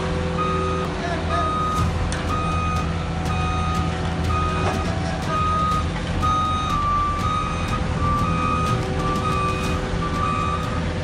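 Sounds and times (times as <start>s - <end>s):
engine humming: 0.0s - 11.0s
reversing alarm beeping: 0.3s - 11.0s.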